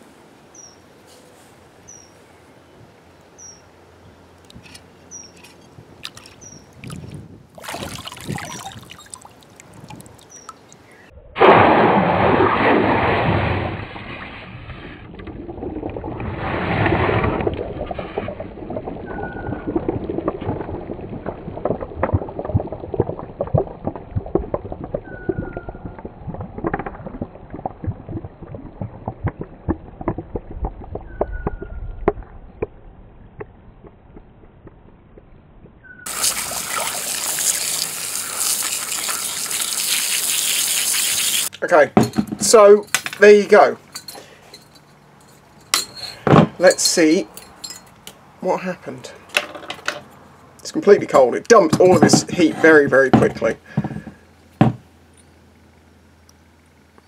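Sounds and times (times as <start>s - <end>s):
birds chirping: 0.5s - 6.8s, 8.2s - 11.2s
crackling fizz: 11.4s - 34.8s, 36.0s - 41.5s.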